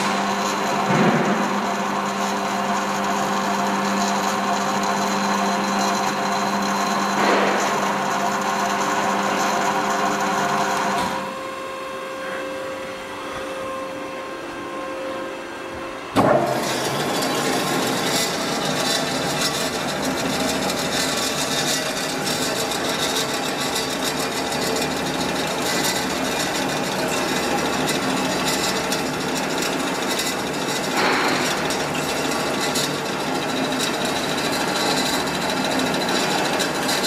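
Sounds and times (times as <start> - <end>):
bandsaw machine hum: 0.0 - 37.0
sharp machine clunk: 30.9 - 31.7.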